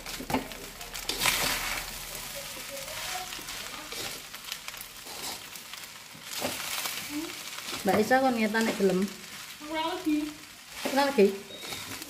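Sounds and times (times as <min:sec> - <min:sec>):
fried rice sizzling in a wok: 0:00.0 - 0:12.0
metal spatula scraping pan: 0:01.0 - 0:04.3, 0:05.0 - 0:05.6, 0:10.7 - 0:12.0.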